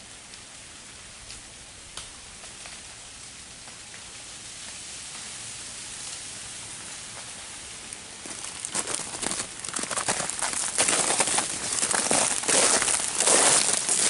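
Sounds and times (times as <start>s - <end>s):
freezing rain hissing: 0.0s - 14.0s
ticks of drops and ice: 8.2s - 14.0s.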